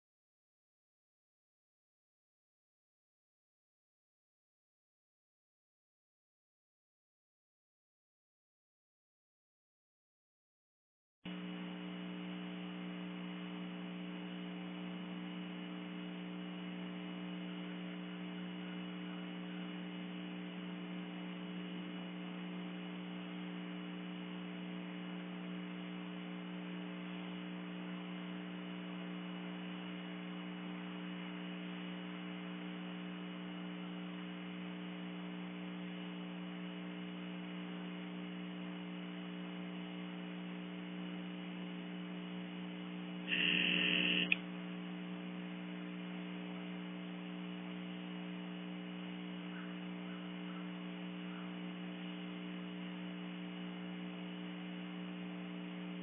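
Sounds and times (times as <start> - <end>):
electrical mains hum: 11.3 - 56.0.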